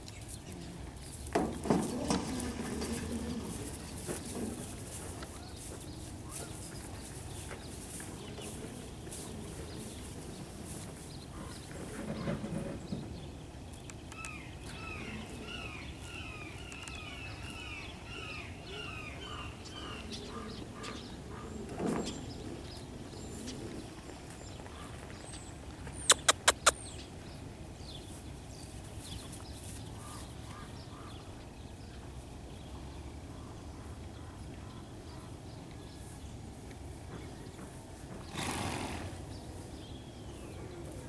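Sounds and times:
steady low hiss: 0:00.0 - 0:41.0
sharp loud clicks: 0:26.1 - 0:26.8.

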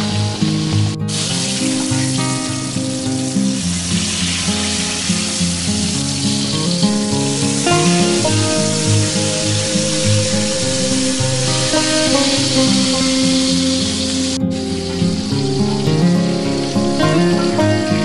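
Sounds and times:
eggplant sizzling in hot oil: 0:01.1 - 0:15.4
background music: 0:06.4 - 0:18.0.

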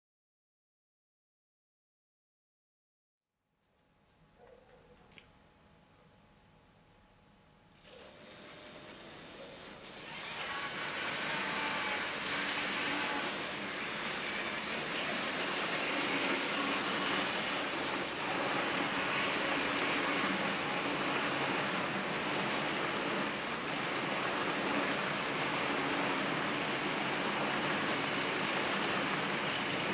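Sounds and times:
model train rattling on track: 0:07.9 - 0:29.9.

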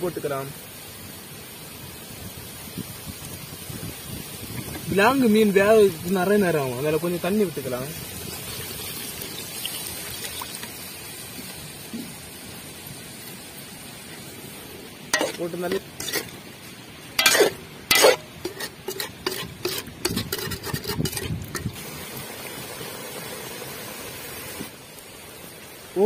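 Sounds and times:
simmering liquid hissing: 0:00.0 - 0:26.0
metal ladle scraping a pot: 0:15.2 - 0:16.5, 0:17.2 - 0:21.8.

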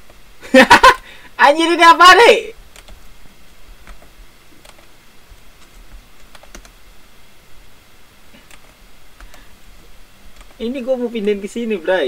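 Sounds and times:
keyboard and mouse clicks: 0:02.7 - 0:03.2, 0:03.8 - 0:06.8, 0:08.4 - 0:10.6.

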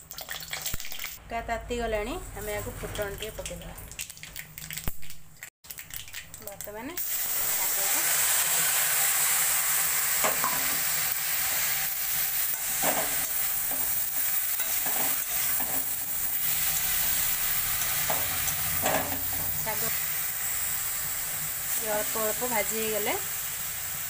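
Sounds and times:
greens sizzling in a pan: 0:05.7 - 0:24.0.

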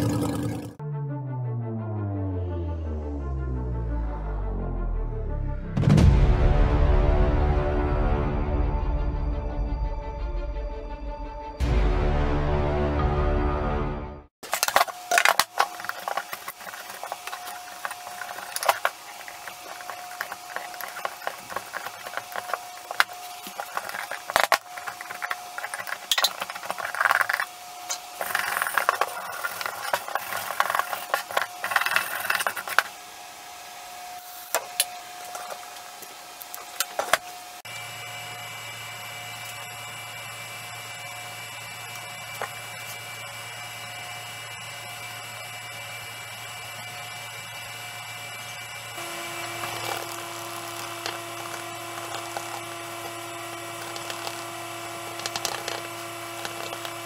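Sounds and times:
hand tool scraping wood: 0:14.4 - 0:32.9, 0:49.0 - 0:57.0
steady hum: 0:14.4 - 0:57.0.

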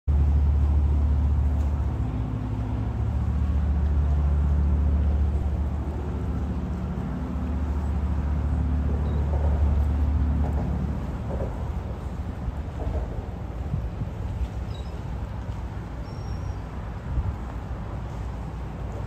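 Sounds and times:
boat engines droning: 0:00.1 - 0:19.0.

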